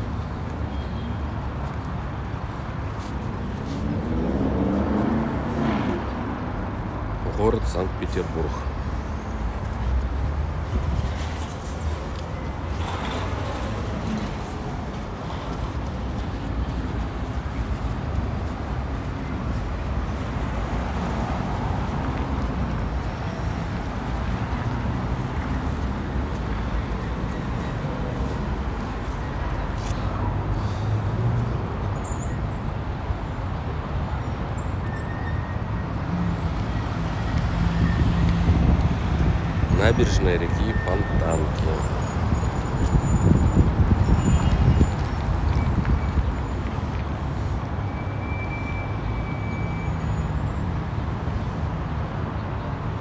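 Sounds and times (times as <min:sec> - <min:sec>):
road traffic rumble: 0:00.0 - 0:53.0.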